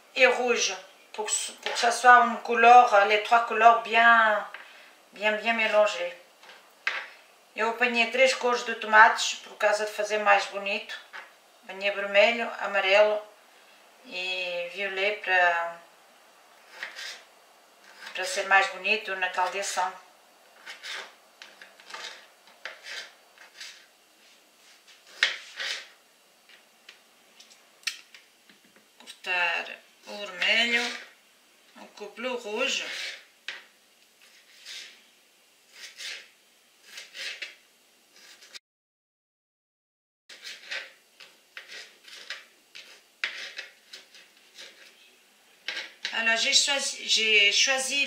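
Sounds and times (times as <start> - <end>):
knife cutting on plastic board: 16.7 - 17.2, 20.6 - 23.9, 24.9 - 25.9, 34.2 - 35.0, 35.7 - 37.6, 38.2 - 38.6, 40.3 - 45.0.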